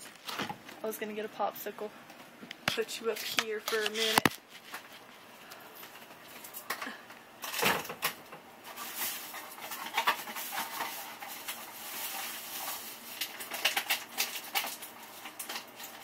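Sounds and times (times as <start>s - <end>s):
rustling: 8.6s - 16.0s.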